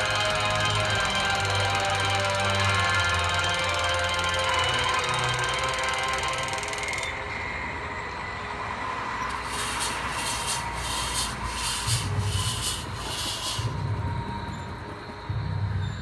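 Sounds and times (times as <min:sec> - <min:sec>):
fog machine hissing: 0:00.0 - 0:07.0, 0:09.3 - 0:14.5
steady rushing background: 0:00.0 - 0:16.0.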